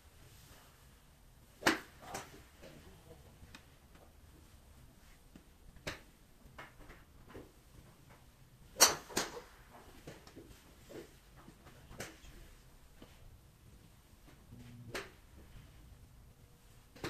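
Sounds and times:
golf balls being struck: 0:08.8 - 0:09.5.

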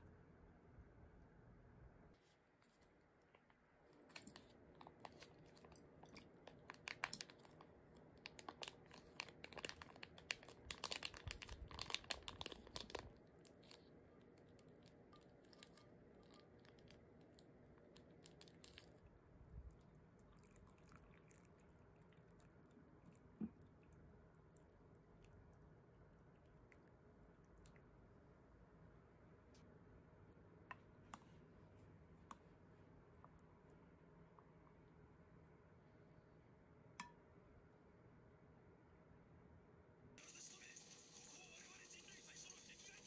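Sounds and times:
foil pouch crinkling: 0:04.3 - 0:13.9.

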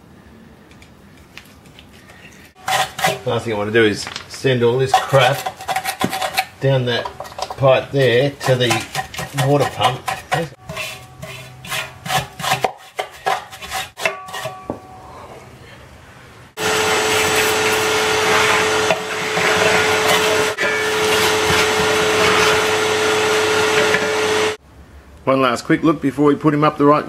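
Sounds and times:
scraping and scratching muck: 0:01.8 - 0:03.5, 0:04.1 - 0:14.5
vacuum cleaner running: 0:16.6 - 0:24.6.

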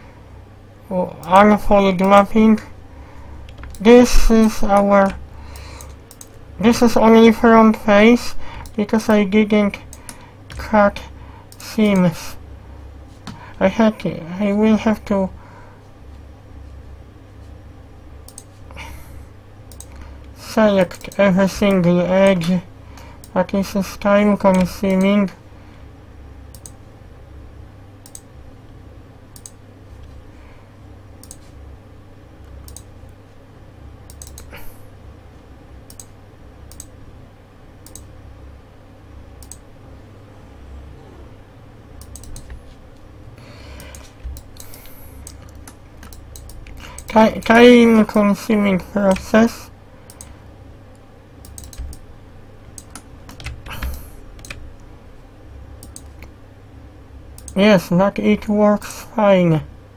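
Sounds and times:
steady low hum: 0:00.0 - 0:59.9
computer mouse clicking: 0:03.4 - 0:06.4, 0:09.8 - 0:10.7, 0:18.2 - 0:18.6, 0:19.7 - 0:23.4, 0:26.5 - 0:26.8, 0:28.0 - 0:28.3, 0:29.3 - 0:30.2, 0:31.2 - 0:31.5, 0:32.4 - 0:33.2, 0:34.1 - 0:34.6, 0:35.9 - 0:37.0, 0:37.8 - 0:38.1, 0:39.4 - 0:39.7, 0:42.0 - 0:42.8, 0:43.7 - 0:47.6, 0:50.1 - 0:52.1, 0:52.7 - 0:54.9, 0:55.8 - 0:56.3, 0:57.4 - 0:57.6.

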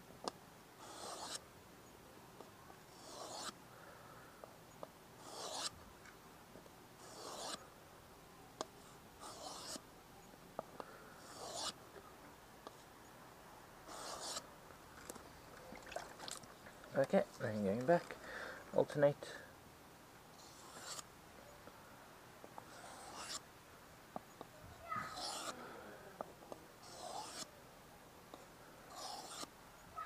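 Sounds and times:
knife sharpening on whetstone: 0:00.8 - 0:01.4, 0:02.9 - 0:03.6, 0:05.2 - 0:05.7, 0:07.0 - 0:07.6, 0:09.2 - 0:09.8, 0:11.2 - 0:11.8, 0:13.9 - 0:14.4, 0:20.4 - 0:21.0, 0:22.7 - 0:23.4, 0:25.1 - 0:25.6, 0:26.8 - 0:27.5, 0:28.9 - 0:29.5.

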